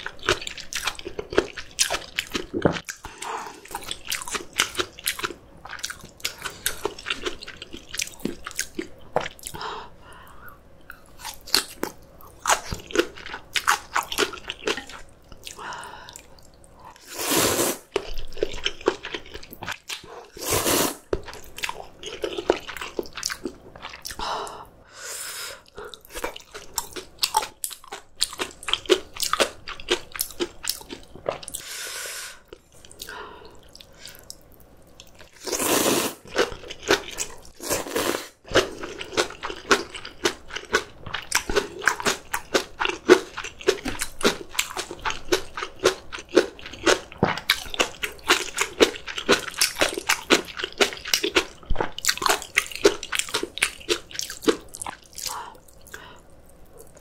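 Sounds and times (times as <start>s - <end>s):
crunching and chewing food: 0.0s - 9.6s, 10.2s - 17.1s, 17.8s - 20.4s, 21.1s - 24.3s, 25.6s - 31.7s, 32.4s - 57.0s.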